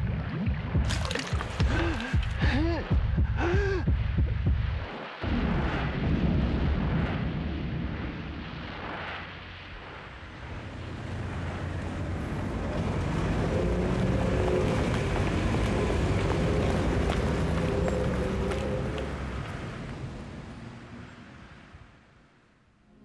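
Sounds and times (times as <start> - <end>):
low rumbling roar: 9.8 - 21.1.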